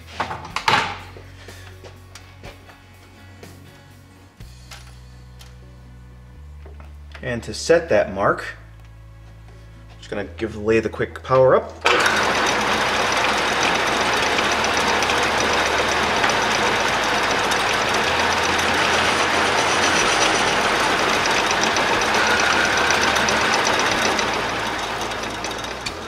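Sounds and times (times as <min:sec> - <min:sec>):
metal lathe running: 0:11.8 - 0:26.0.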